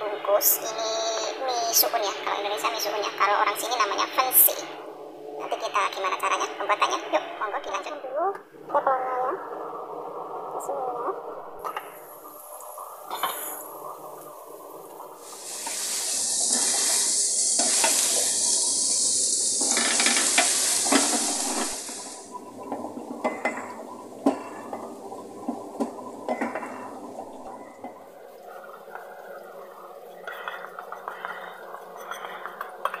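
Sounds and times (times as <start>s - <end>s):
garlic frying in oil: 15.2s - 22.3s.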